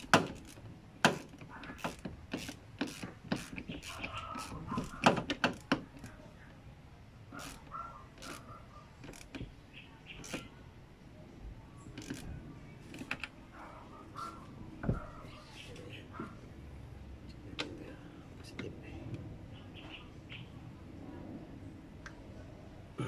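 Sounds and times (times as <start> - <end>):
ratchet wrench clicking: 0.0 - 6.2, 12.0 - 12.3.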